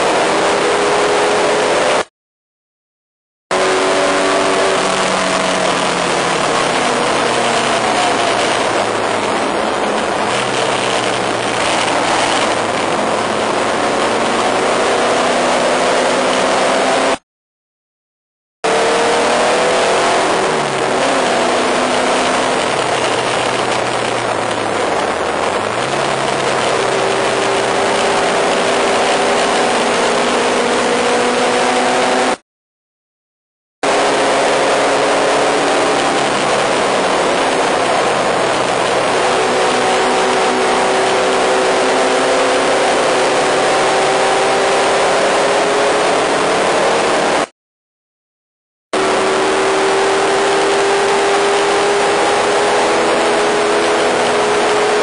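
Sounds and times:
race car engine revving: 0.0 - 2.1, 3.5 - 17.2, 18.6 - 32.4, 33.8 - 47.5, 49.0 - 55.0
wind rush: 4.5 - 16.9, 19.5 - 32.0.

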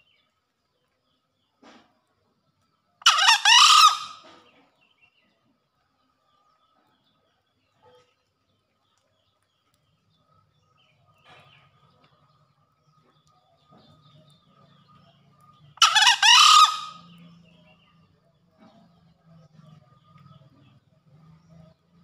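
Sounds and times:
junglefowl hoarse crow: 3.0 - 4.4, 15.8 - 17.2.

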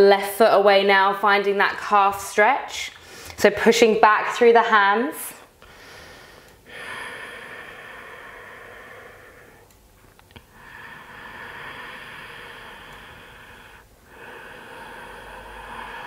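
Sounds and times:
slow deep breathing: 5.6 - 9.8, 10.4 - 16.0.

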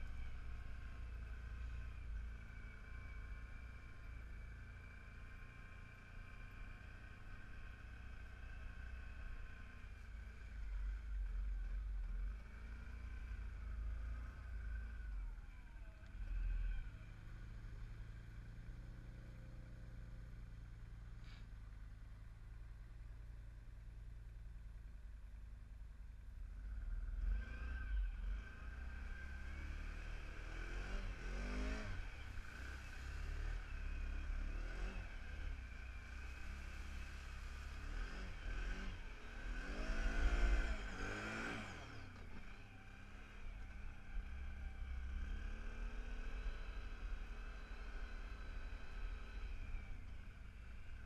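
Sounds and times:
off-road vehicle engine revving: 26.6 - 51.0.

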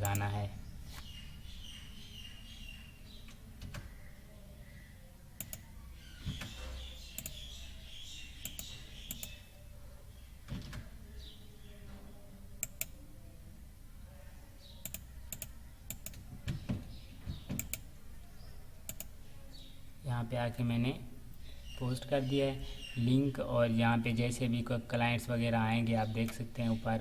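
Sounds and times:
computer mouse clicks: 0.0 - 0.3, 5.4 - 5.7, 6.4 - 7.4, 8.4 - 9.4, 12.6 - 13.0, 14.8 - 16.6, 17.5 - 17.9, 18.9 - 19.1.

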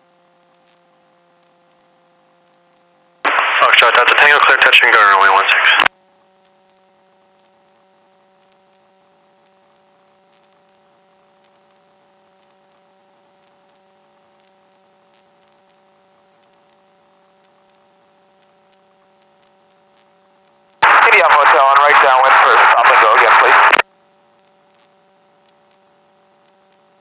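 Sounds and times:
electrical hum and hiss: 0.0 - 6.3, 6.9 - 27.0
fixed radio tones: 3.3 - 5.9, 20.8 - 23.8
static clicks: 3.3 - 5.9, 20.8 - 23.8.

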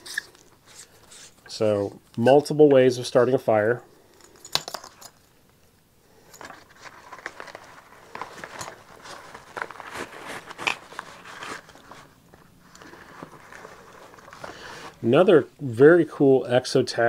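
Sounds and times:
rustling of nylon pouch: 6.2 - 15.1.

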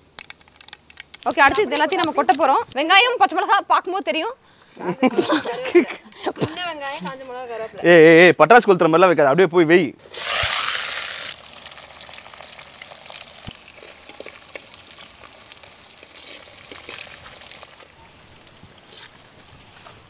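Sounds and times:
small crackles: 0.0 - 2.8, 10.1 - 20.0
shallots sizzling in hot oil: 10.1 - 19.2.

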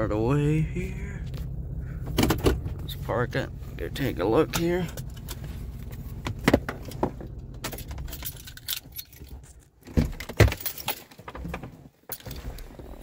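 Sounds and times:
truck engine idling: 0.0 - 8.2
keys jangling: 7.6 - 9.7, 10.4 - 11.2.

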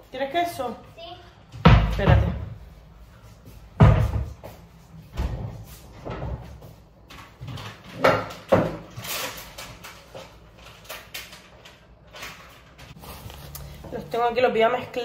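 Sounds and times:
knocks and thuds of kitchen items: 1.5 - 2.7, 3.7 - 9.1.

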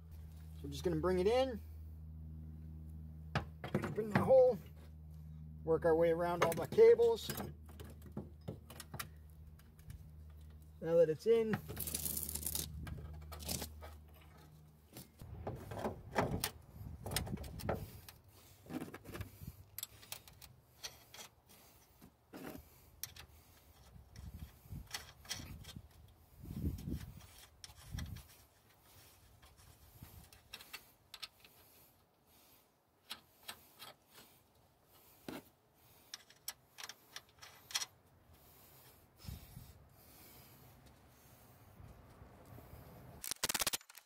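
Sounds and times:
metallic clicks and scrapes: 11.3 - 32.1, 33.0 - 40.2, 42.1 - 44.0.

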